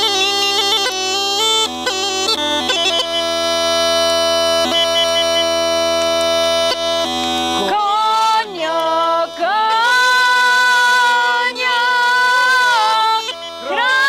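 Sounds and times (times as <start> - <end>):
bagpipe drone: 0.0 - 14.0
man and woman singing together: 7.8 - 14.0.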